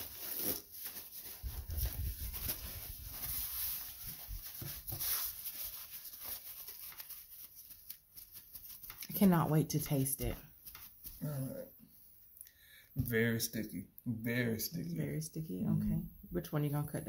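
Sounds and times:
paper towel rustling: 0.0s - 11.3s.

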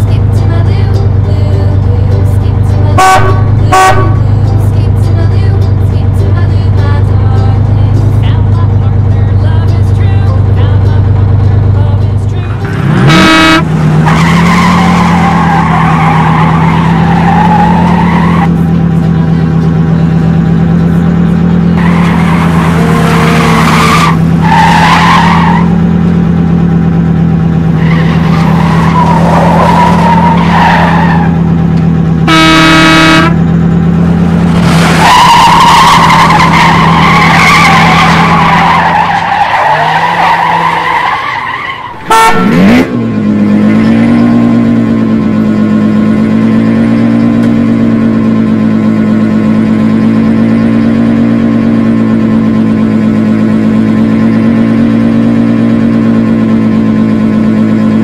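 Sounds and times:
car engine hum: 0.0s - 58.0s
tyres skidding: 0.0s - 58.0s
car horn: 2.8s - 4.7s, 12.6s - 20.2s, 32.2s - 33.6s, 35.0s - 43.0s.

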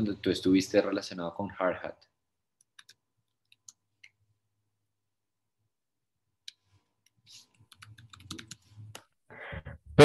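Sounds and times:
faint keyboard typing: 2.6s - 4.2s, 6.5s - 9.2s.

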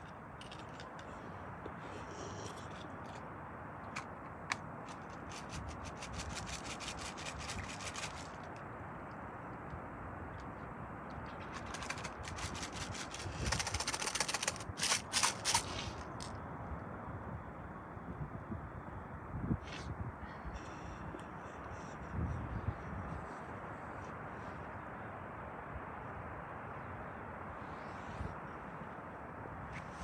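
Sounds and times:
fishing reel ticking: 11.7s - 15.7s.

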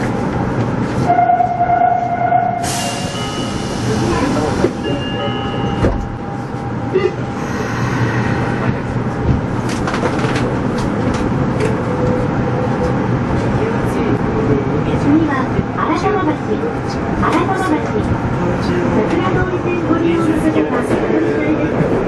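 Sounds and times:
subway train rumble: 0.0s - 22.0s.

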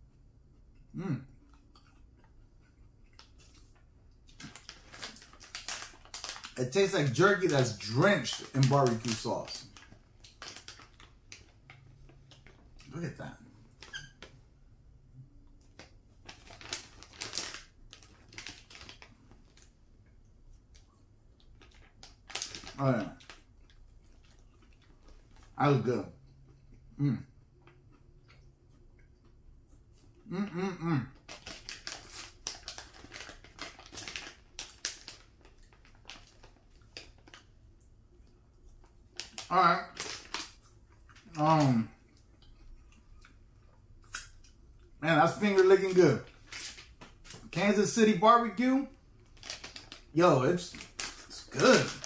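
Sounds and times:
plastic snack pouch crinkling: 3.2s - 14.3s, 15.5s - 19.7s, 20.7s - 25.9s, 31.2s - 37.6s, 38.7s - 41.8s, 45.2s - 52.0s.

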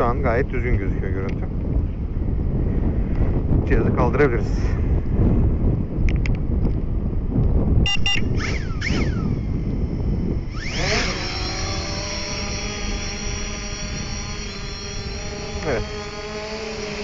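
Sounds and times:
wind rumbling on microphone: 0.0s - 17.0s
electronic beeps and chirps: 7.8s - 8.4s
drone propeller whine: 7.8s - 17.0s.

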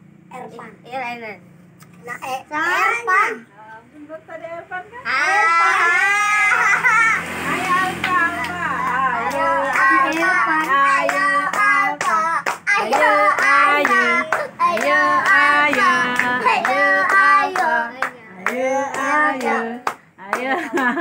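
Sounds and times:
children singing a chant: 7.3s - 19.9s
hands clapping to a beat: 8.0s - 21.0s.

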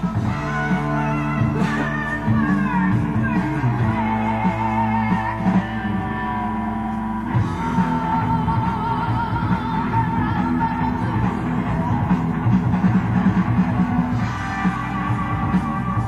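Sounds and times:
person singing with vibrato: 0.0s - 12.2s
electric guitar rock music: 0.0s - 16.0s.

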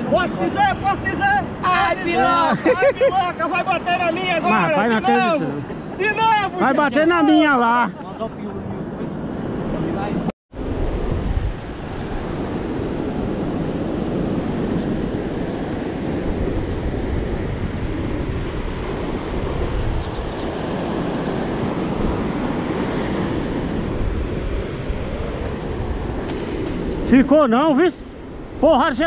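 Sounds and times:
surf rushing on beach: 0.0s - 29.0s
wind buffeting microphone: 7.8s - 29.0s.

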